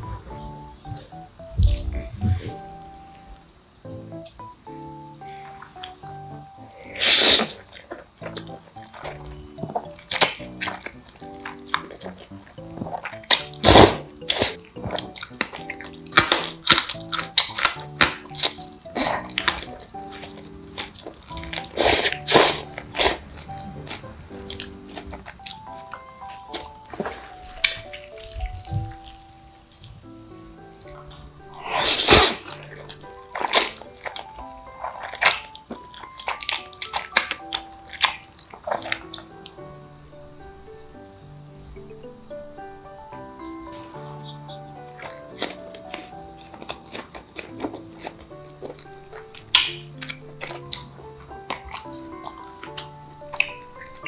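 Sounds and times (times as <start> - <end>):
soft background music: 0.0 - 54.0
noodle slurping and chewing: 5.2 - 39.6, 43.5 - 54.0
person slurping noodles: 6.8 - 7.7, 21.6 - 23.2, 31.6 - 32.8.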